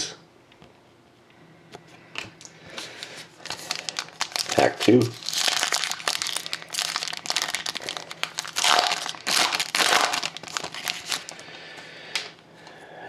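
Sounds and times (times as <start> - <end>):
foil wrapper tearing and crinkling: 2.8 - 11.4.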